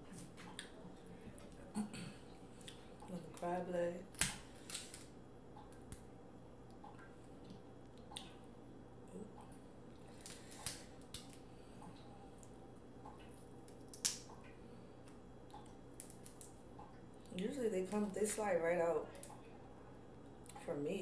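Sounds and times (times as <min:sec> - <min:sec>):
shell cracking: 0:04.1 - 0:05.1, 0:10.1 - 0:11.4, 0:13.6 - 0:14.4, 0:15.1 - 0:16.6.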